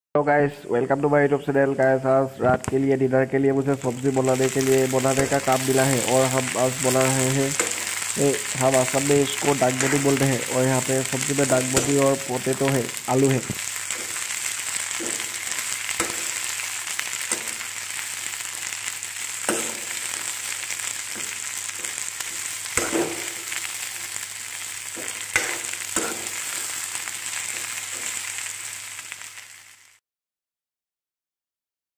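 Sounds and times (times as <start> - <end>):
vegetables sizzling in oil: 3.5 - 30.0
spatula scraping and knocking pan: 14.9 - 16.4, 17.3 - 17.6, 19.4 - 20.3, 21.1 - 23.6, 24.9 - 26.7.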